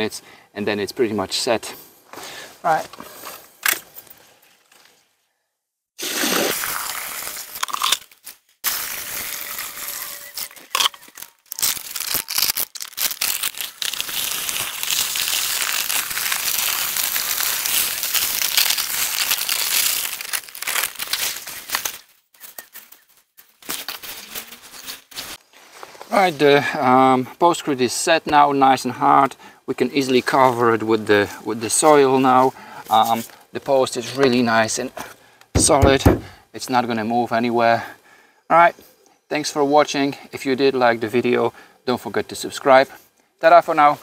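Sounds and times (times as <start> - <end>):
plastic bag rustling: 7.0 - 26.0.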